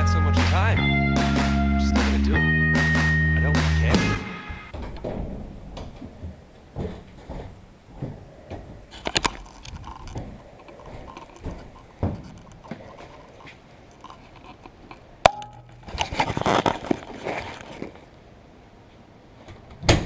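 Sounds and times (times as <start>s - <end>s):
rustling: 4.7s - 18.2s
camera handling rubbing and knocks: 8.9s - 18.1s.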